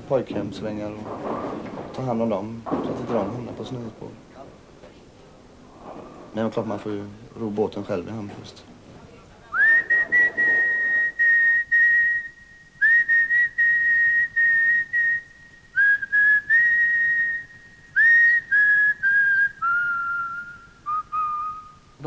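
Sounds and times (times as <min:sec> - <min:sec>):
person whistling a slow tune: 0:09.6 - 0:22.0.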